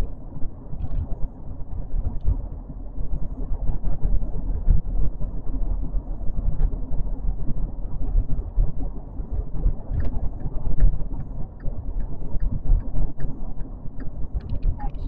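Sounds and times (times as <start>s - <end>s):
car cabin rumble: 8.8s - 15.0s.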